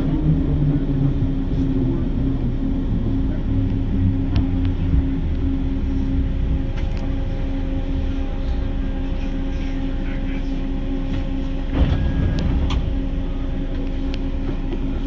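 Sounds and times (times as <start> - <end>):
train rumble with hum: 0.0 - 15.0
train bump: 11.0 - 15.0.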